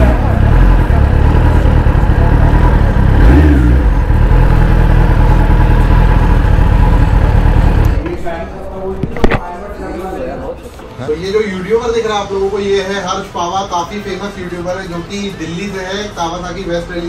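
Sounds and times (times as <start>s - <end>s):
motorcycle engine at low revs: 0.0s - 8.0s.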